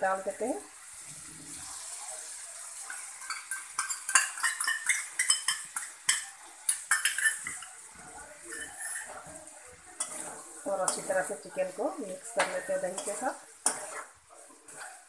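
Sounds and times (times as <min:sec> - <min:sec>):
faint frying sizzle: 0:00.0 - 0:15.0
metal spatula scraping pan: 0:06.9 - 0:07.8, 0:08.4 - 0:09.4, 0:10.0 - 0:15.0.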